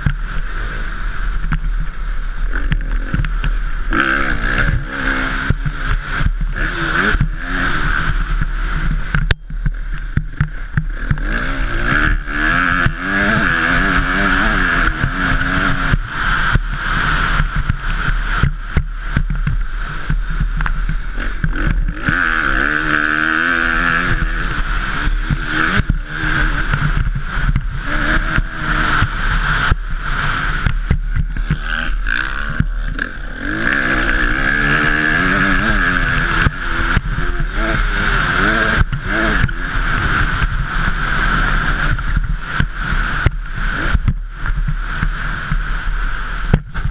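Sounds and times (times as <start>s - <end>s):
motocross bike engine revving: 0.0s - 46.9s
wind rush: 0.0s - 46.9s.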